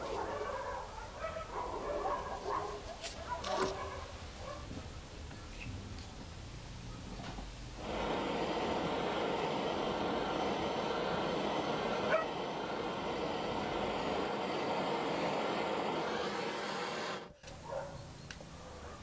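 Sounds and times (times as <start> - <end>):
gas torch flame hissing: 7.8 - 17.6.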